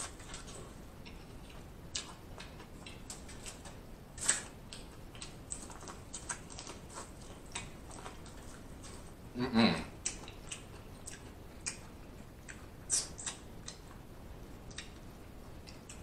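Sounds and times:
chewing corn on the cob: 0.0 - 9.2, 9.9 - 16.0
mouth smacks: 10.0 - 13.8.

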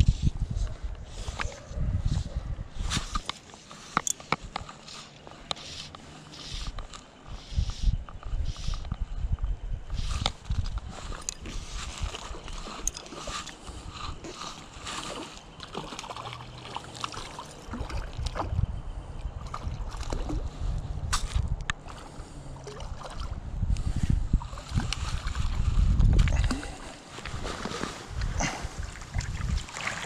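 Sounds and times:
low rumbling on microphone: 0.0 - 3.1, 18.0 - 27.5
fishing rod handling clicks: 2.8 - 9.0, 9.9 - 16.1
stream water splashing: 14.2 - 18.6, 21.8 - 23.4, 28.8 - 30.0.

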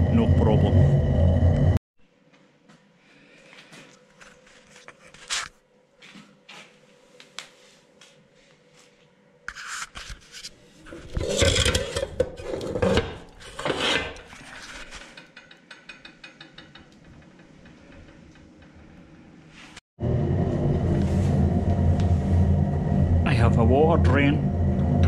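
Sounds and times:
metal scraping on metal: 9.5 - 19.0.

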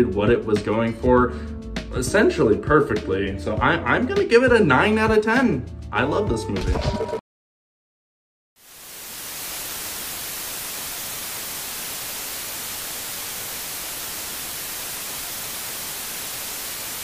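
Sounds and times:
television static hiss: 8.6 - 17.0.

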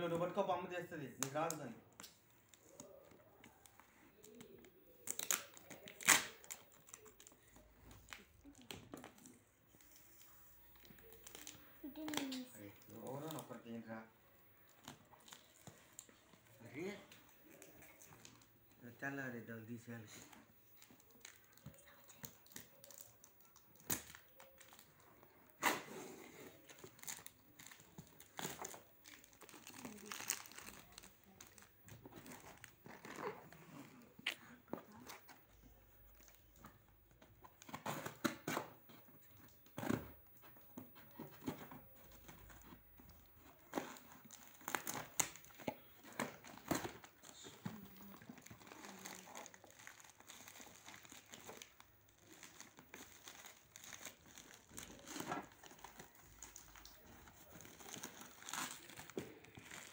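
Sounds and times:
packaging wrap tearing and crumpling: 4.4 - 7.4, 10.2 - 13.6, 20.7 - 34.1, 37.6 - 59.9.

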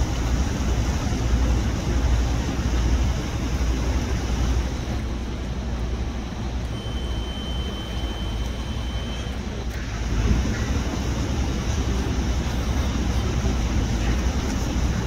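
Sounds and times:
steady low rumble: 0.0 - 15.0
thin high steady tone: 6.6 - 9.6.

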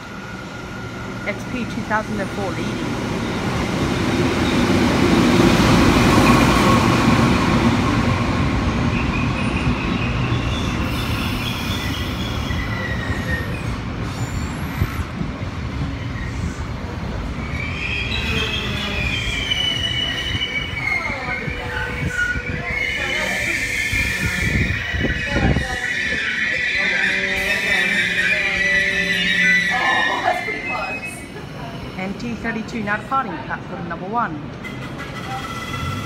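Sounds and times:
diesel train passing: 0.0 - 36.0
train carriages rolling by: 0.0 - 36.0
train brakes squealing: 8.9 - 15.1, 17.3 - 32.4, 34.6 - 36.0.

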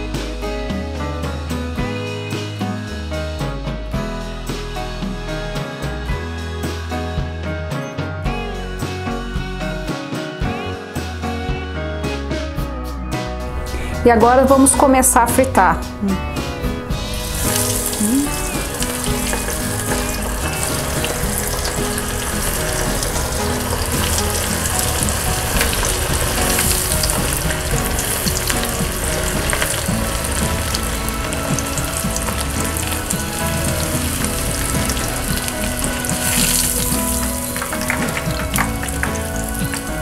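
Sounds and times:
chicken frying in hot oil: 17.0 - 40.0.

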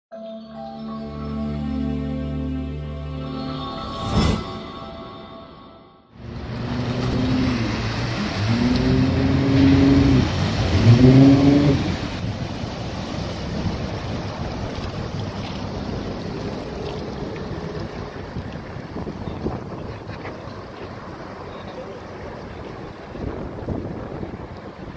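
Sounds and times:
boat engine: 6.2 - 24.9
water rushing: 6.2 - 24.9.

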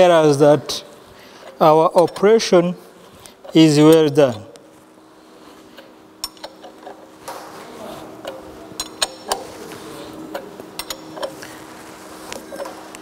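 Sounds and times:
faint steady hum: 0.0 - 13.0
wrench clicking on metal: 5.8 - 7.0, 8.2 - 9.5, 10.3 - 11.4.

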